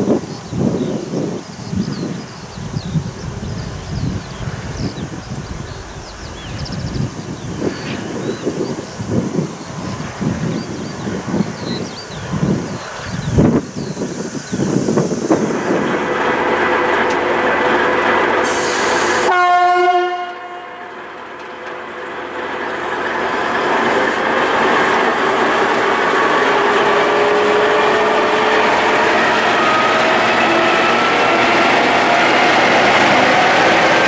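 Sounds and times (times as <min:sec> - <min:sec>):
diesel locomotive engine running: 0:00.0 - 0:34.0
locomotive horn: 0:18.4 - 0:20.9.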